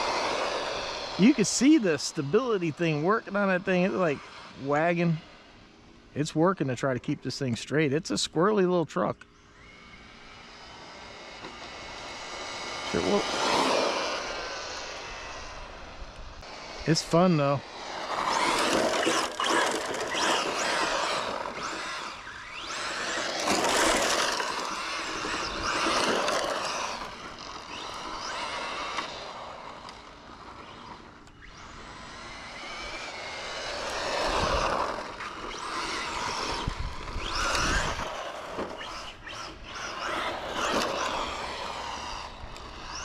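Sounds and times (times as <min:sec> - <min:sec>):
rc truck motor whine: 0:00.0 - 0:06.1, 0:07.5 - 0:43.0.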